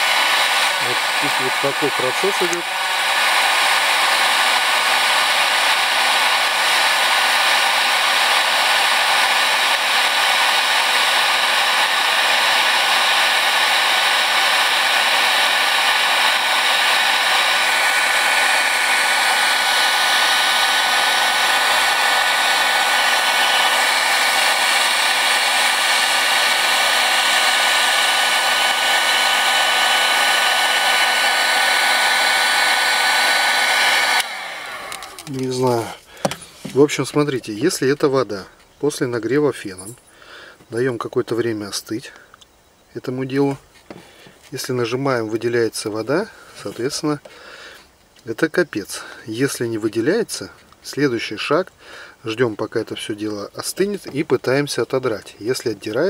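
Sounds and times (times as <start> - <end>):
heat gun blowing hot air: 0.0 - 37.8.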